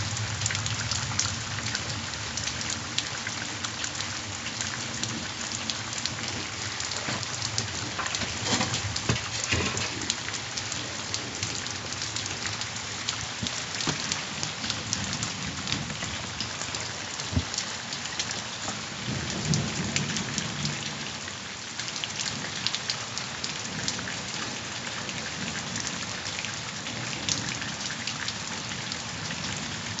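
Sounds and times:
heavy rain falling: 0.0 - 30.0
low rolls of thunder: 19.0 - 21.0.

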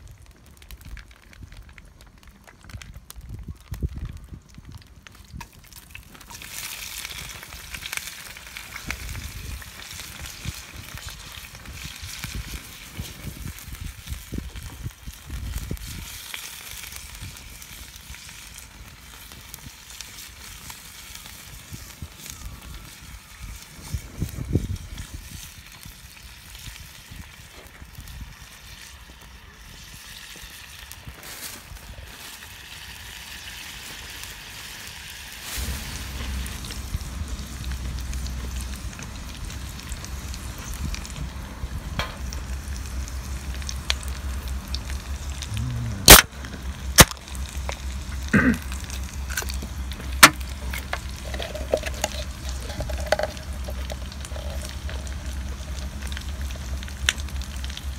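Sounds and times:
food sizzling in a frying pan: 5.2 - 57.9
steady low rumble: 35.3 - 57.9.

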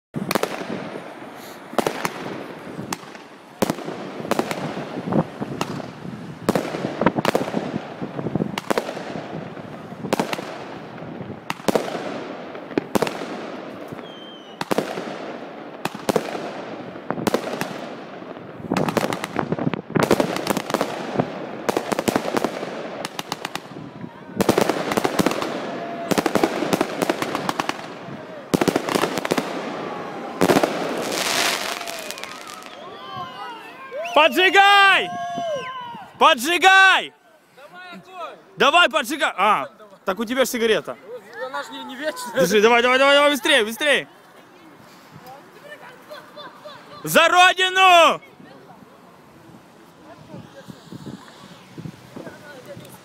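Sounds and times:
fireworks bangs: 0.2 - 35.5, 49.2 - 53.0
fireworks crackling: 0.2 - 53.0.

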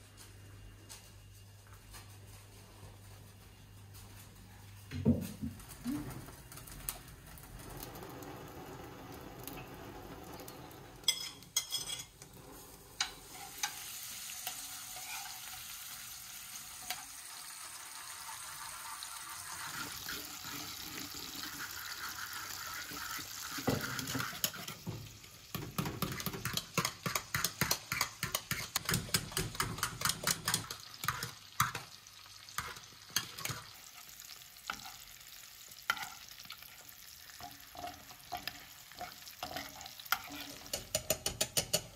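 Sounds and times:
fat sizzling in a pan: 7.3 - 41.9
spoon stirring in pot: 11.0 - 15.5, 22.8 - 24.9, 25.5 - 41.9
spoon scraping pan: 11.0 - 15.7, 22.0 - 24.9, 25.6 - 41.9.

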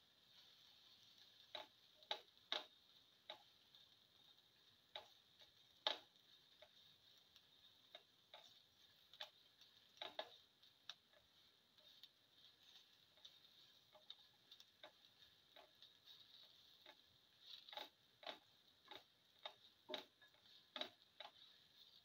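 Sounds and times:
faint steady hiss: 0.0 - 22.0
spatula tapping and scraping pan: 0.2 - 22.0.

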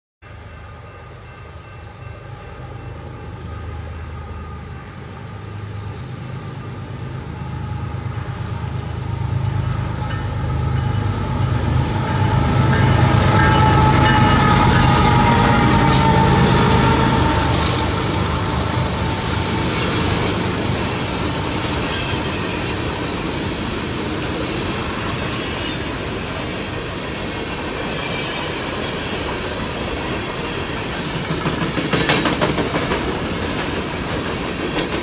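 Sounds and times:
locomotive engine drone: 0.3 - 27.8
train wheels rolling on rail: 4.9 - 35.0.

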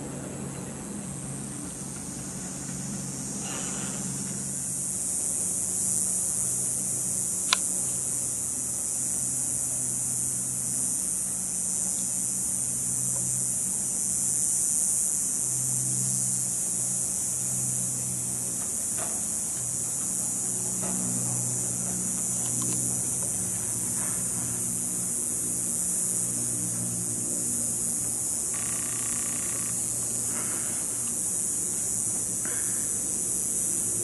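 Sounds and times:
constant high hiss: 0.0 - 34.0
diesel engines droning: 29.4 - 34.0.

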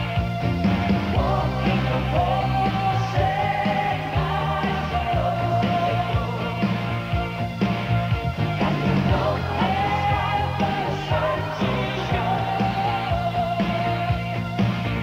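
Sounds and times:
rock band music: 0.0 - 15.0.

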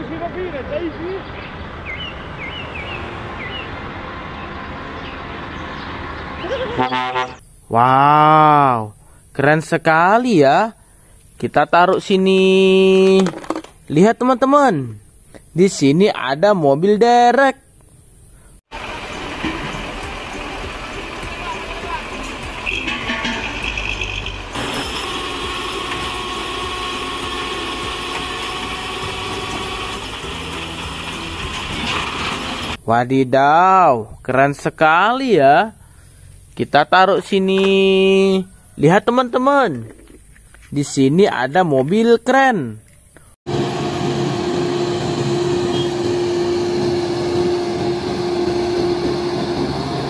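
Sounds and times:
truck engine running: 1.4 - 6.9, 18.7 - 32.8, 43.5 - 50.0.

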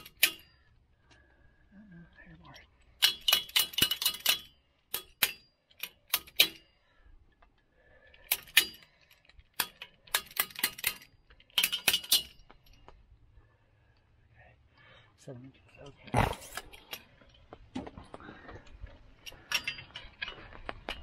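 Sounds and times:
wrench clicking metallically: 0.0 - 0.6, 2.8 - 6.7, 8.2 - 12.4.

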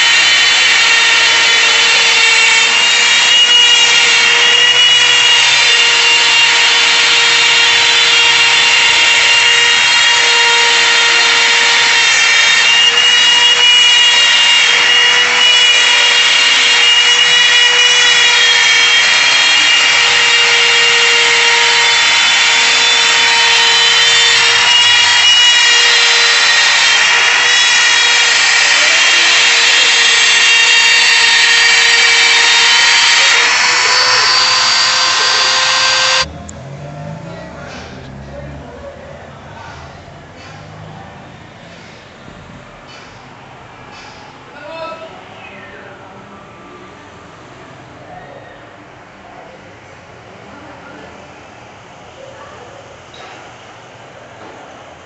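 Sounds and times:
router whining cutting wood: 0.0 - 36.3.

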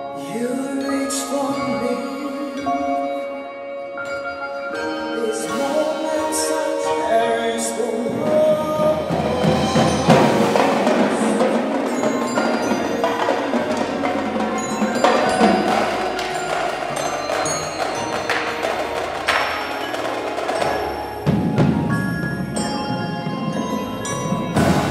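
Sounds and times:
marimbas and vibraphones: 0.0 - 24.9
sharp drum strokes: 8.2 - 22.6, 24.3 - 24.9.

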